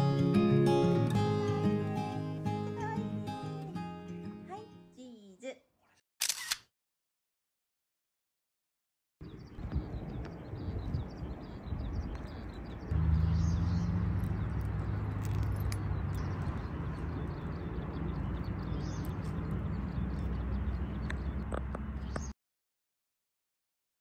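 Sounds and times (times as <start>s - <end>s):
small birds chirping: 9.2s - 22.4s.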